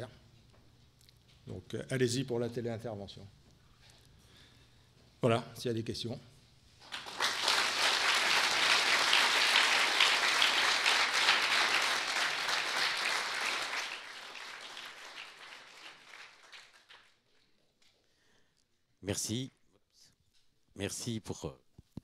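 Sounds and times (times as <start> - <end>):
audience applauding: 6.8 - 17.2.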